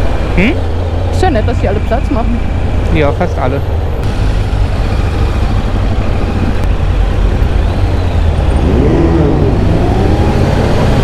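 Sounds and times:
motorcycle engine rumble: 2.7 - 11.0.

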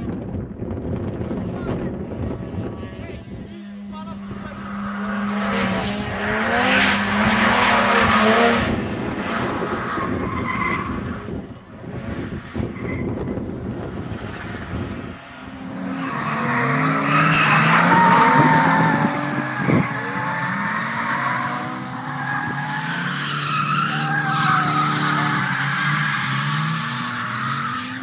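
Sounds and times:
car engine revving hard: 4.5 - 10.3, 14.6 - 23.4
tyres squealing: 15.9 - 26.4.

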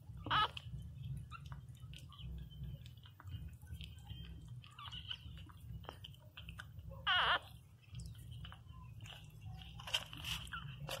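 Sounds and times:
puppy squealing: 0.1 - 2.8, 4.1 - 5.6, 6.9 - 7.7
puppy whimpering: 0.1 - 11.0.

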